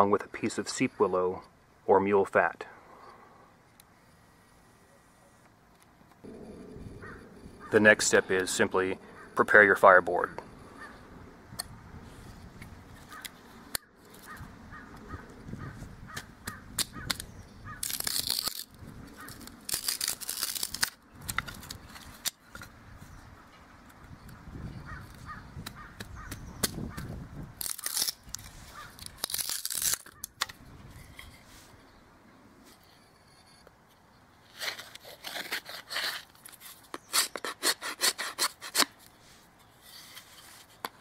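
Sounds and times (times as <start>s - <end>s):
crackling tearing fibre: 16.1s - 22.4s, 27.6s - 30.6s, 34.4s - 37.5s
knife splitting dry stalk: 16.1s - 22.4s, 25.6s - 30.6s, 34.6s - 39.0s.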